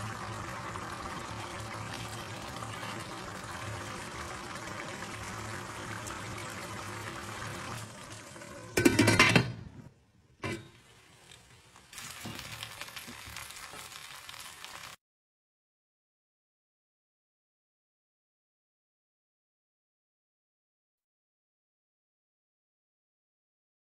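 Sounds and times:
pot boiling and bubbling: 0.0s - 15.0s.

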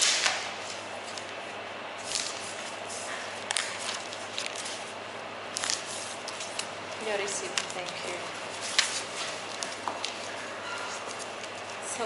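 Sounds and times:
paper rustling: 0.0s - 12.0s
steady background noise: 0.0s - 12.0s.

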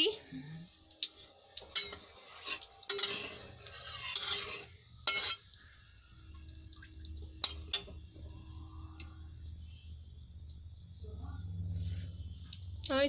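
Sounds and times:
spatula scraping metal pan: 1.8s - 5.5s.

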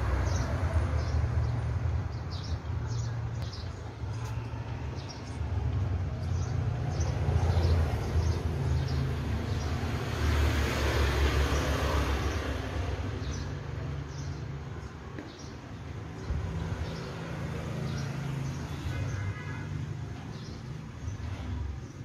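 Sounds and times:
vehicle passing by: 5.0s - 13.6s.

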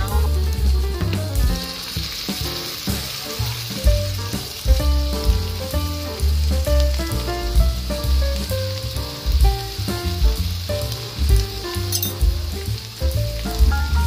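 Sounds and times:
paste sizzling in a wok: 0.0s - 14.0s
metal spatula stirring: 11.9s - 12.3s.

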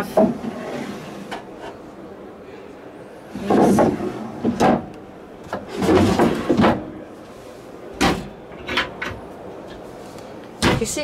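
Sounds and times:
wooden drawers sliding shut: 0.0s - 1.7s, 3.4s - 7.0s, 8.0s - 9.2s.

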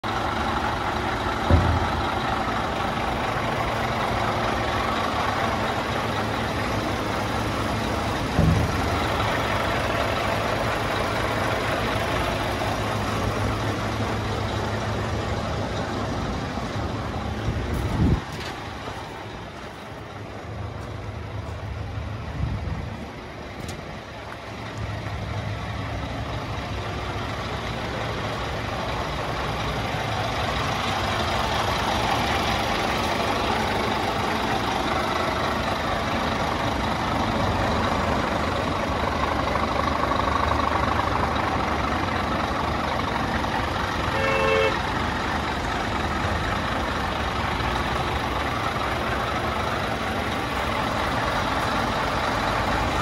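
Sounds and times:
diesel engine idling: 0.0s - 53.0s
thumps: 1.4s - 2.3s, 8.2s - 9.4s.

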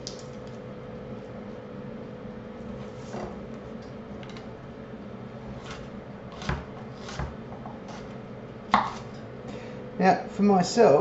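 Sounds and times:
faint steady hum: 0.0s - 11.0s
knife chopping on wooden board: 5.6s - 9.2s.

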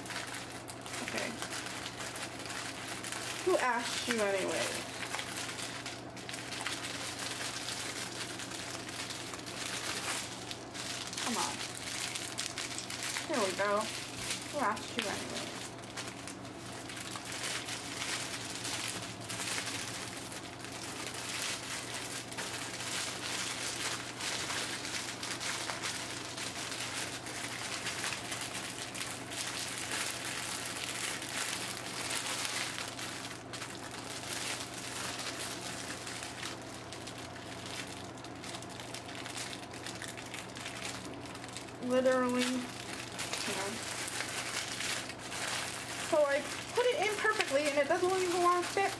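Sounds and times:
plastic packaging crinkling: 0.0s - 48.9s.

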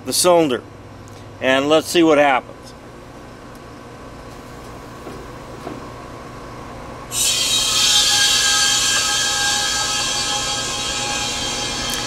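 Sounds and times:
air conditioner unit humming: 0.0s - 12.0s
refrigerant hissing with whistling tone: 7.1s - 12.0s.

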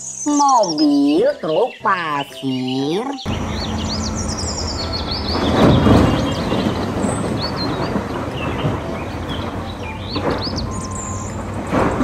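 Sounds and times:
birds chirping: 0.0s - 12.0s
heavy diesel machinery running: 3.3s - 12.0s
earth pouring into steel truck bed: 4.2s - 12.0s.

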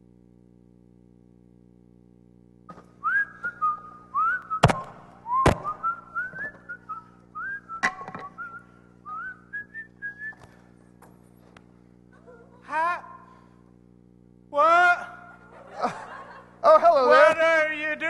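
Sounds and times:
person whistling a tune: 3.0s - 4.7s, 5.3s - 10.4s
sharp knocks and thuds: 4.6s - 5.8s.

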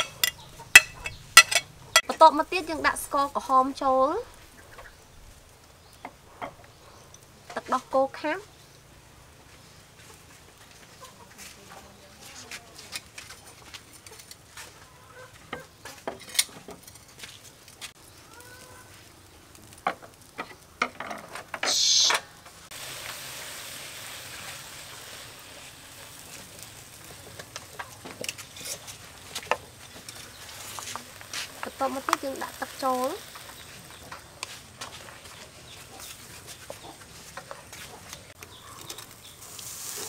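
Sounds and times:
chickens clucking: 0.0s - 2.1s, 4.4s - 5.1s, 10.0s - 12.1s, 13.4s - 16.1s, 18.2s - 19.0s, 26.0s - 31.1s, 31.7s - 40.0s
utensils clinking on a wok: 0.0s - 2.2s, 15.6s - 17.2s, 24.2s - 36.5s, 38.8s - 39.4s
loud hiss: 21.6s - 27.3s
paste sizzling in a wok: 22.7s - 36.3s, 39.0s - 40.0s.

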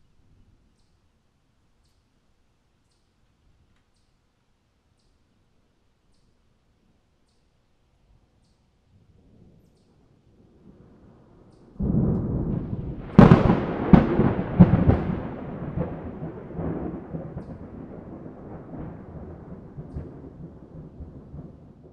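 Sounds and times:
thunder rumble: 8.9s - 21.9s
sharp thunder cracks: 10.4s - 21.9s.

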